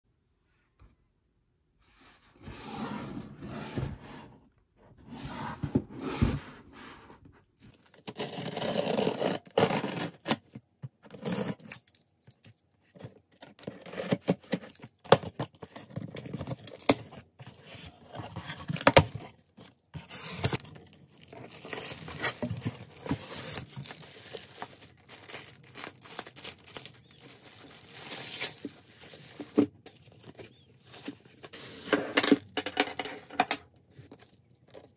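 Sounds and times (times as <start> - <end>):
packing tape tearing: 20.4 - 29.6
plastic bag crinkling: 20.5 - 29.7.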